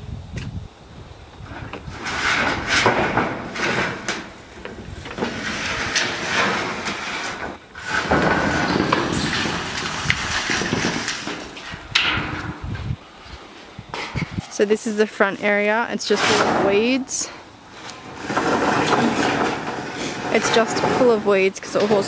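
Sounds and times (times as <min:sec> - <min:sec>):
metal roofing sheets scraping: 0:01.4 - 0:22.0
metallic clanks and knocks: 0:02.0 - 0:12.6, 0:17.8 - 0:22.0.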